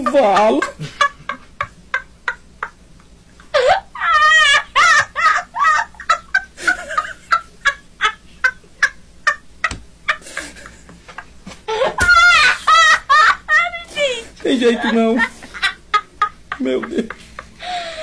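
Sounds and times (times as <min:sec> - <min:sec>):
man laughing wheezily: 0:10.1 - 0:10.9.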